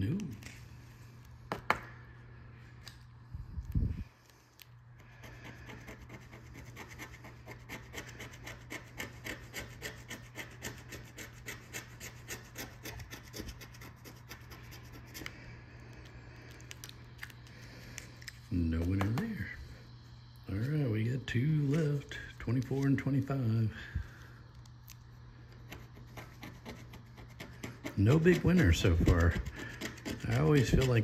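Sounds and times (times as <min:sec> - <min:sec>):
coin scraping scratch ticket: 0:05.2 - 0:15.2, 0:25.8 - 0:31.0.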